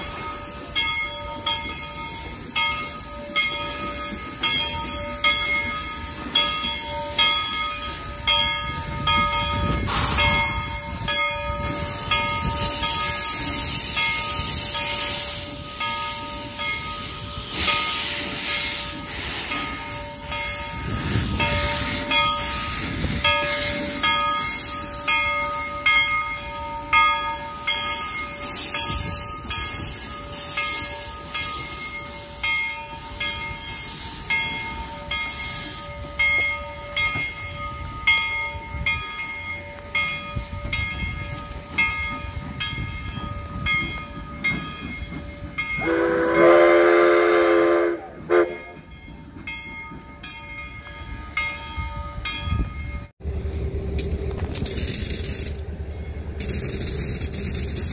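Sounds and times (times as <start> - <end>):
steam hiss: 0.0 - 38.1
locomotive bell ringing: 0.0 - 57.9
steam whistle blowing: 45.8 - 48.9.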